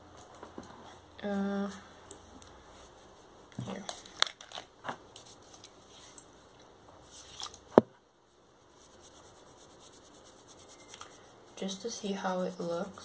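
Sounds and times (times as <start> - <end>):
cotton pad rubbing fingernails: 8.7 - 11.4.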